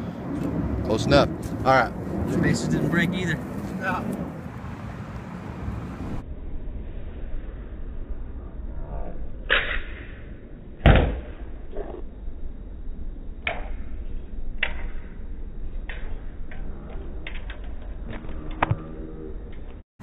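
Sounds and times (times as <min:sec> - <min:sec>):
wind noise on microphone: 0:00.0 - 0:10.1
drone crashing into concrete: 0:09.4 - 0:12.0.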